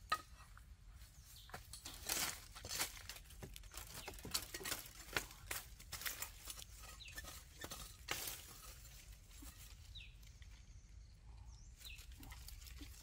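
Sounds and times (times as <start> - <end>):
dry leaves and twigs crackling: 0.0 - 13.0
bird chirp: 1.0 - 2.4, 6.2 - 7.9, 9.3 - 13.0.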